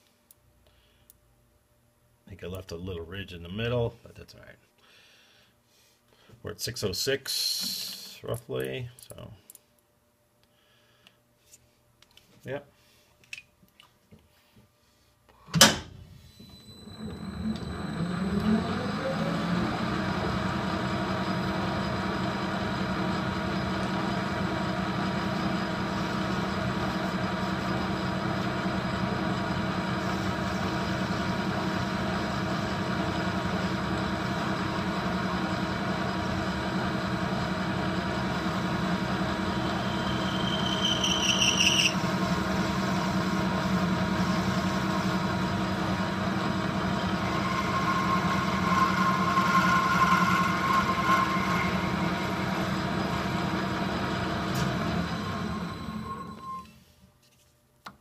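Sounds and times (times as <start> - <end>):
lathe motor running: 16.9 - 56.4
high rising squeal: 37.9 - 43.5, 46.5 - 54.2.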